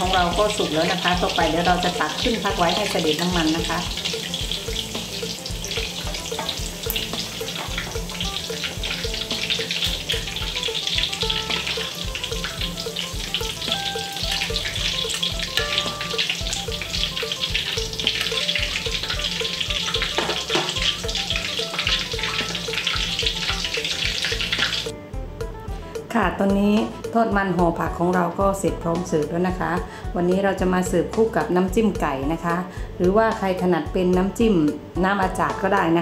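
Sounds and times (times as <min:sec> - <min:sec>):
fritters deep-frying in oil: 0:00.0 - 0:24.9
soft background music: 0:00.0 - 0:36.0.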